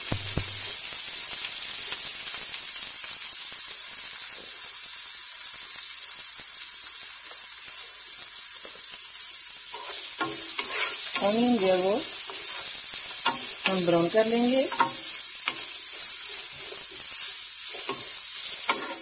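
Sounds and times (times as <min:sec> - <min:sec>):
onions sizzling in oil: 0:00.0 - 0:19.0
spatula scraping a pan: 0:09.7 - 0:19.0.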